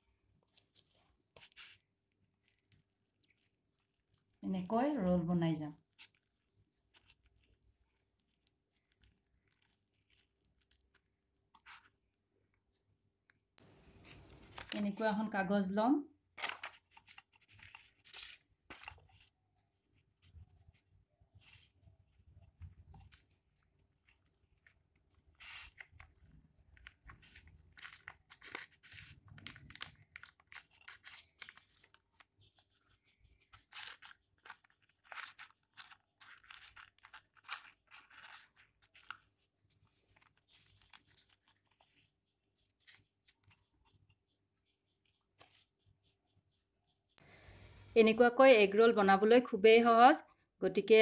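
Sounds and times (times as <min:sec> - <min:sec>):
paper rustling and crinkling: 0:00.4 - 0:04.3, 0:05.9 - 0:12.1, 0:13.8 - 0:15.3, 0:16.4 - 0:43.7, 0:45.1 - 0:45.8.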